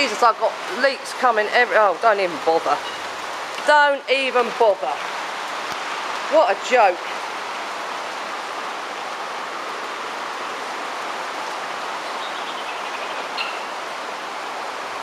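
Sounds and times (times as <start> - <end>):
heavy rain hissing: 0.0 - 15.0
running water: 0.0 - 15.0.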